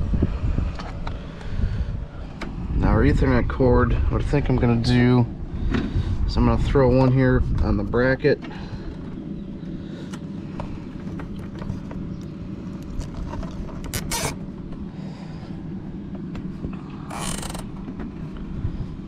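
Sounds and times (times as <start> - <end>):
steady low rumble: 0.0 - 19.0
cable tie ratcheting zip: 13.0 - 14.4, 17.0 - 17.7.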